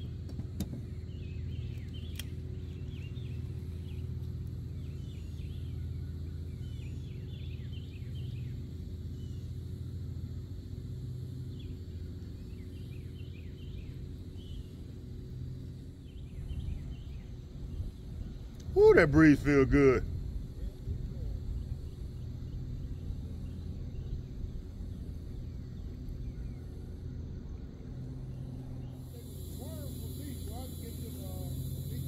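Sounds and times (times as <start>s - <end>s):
small birds chirping: 0.0s - 20.0s, 21.4s - 32.0s
wind rumble on microphone: 20.0s - 26.4s.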